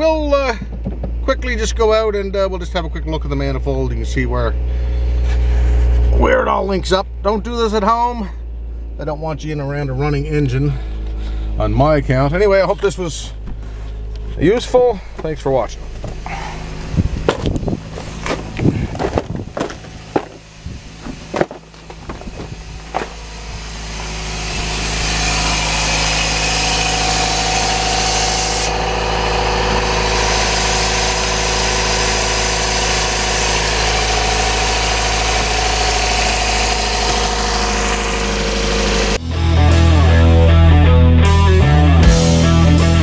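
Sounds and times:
car engine idling: 0:00.0 - 0:43.0
sharp knocks: 0:00.6 - 0:01.3, 0:18.2 - 0:23.2.

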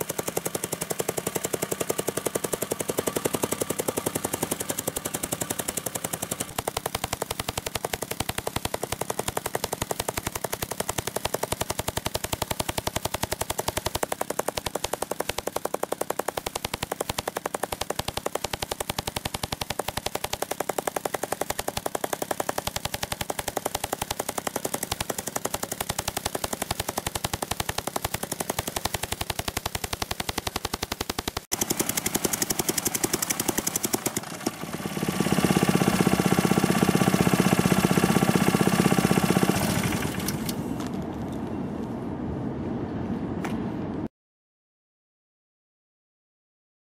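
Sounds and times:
tamping rammer pounding gravel: 0:00.0 - 0:41.1.

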